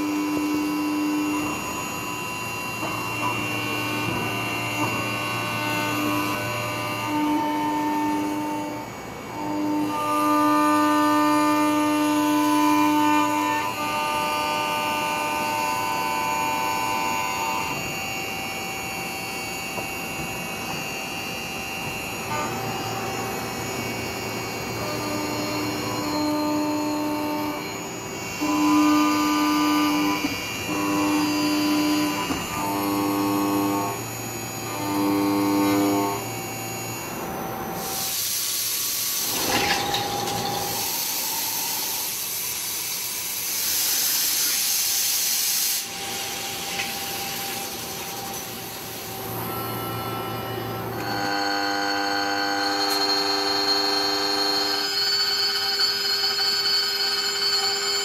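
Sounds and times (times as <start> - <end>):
milling machine cutter whining: 0.0 - 58.0
loud hissing spray: 37.9 - 39.3.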